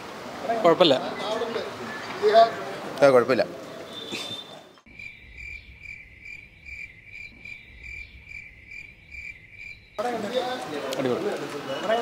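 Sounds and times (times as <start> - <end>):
cricket chirping: 4.9 - 10.1.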